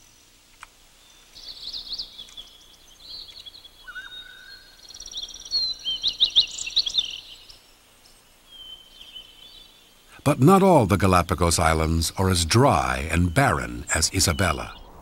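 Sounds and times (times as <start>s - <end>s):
small birds chirping: 0.0s - 15.0s
low bird whistle: 3.2s - 7.3s, 14.2s - 15.0s.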